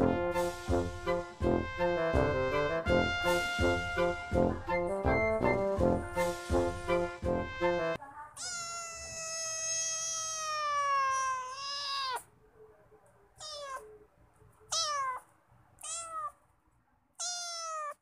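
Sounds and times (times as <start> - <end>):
cat meowing: 8.4 - 12.3, 13.4 - 14.0, 14.6 - 16.4, 17.2 - 18.0.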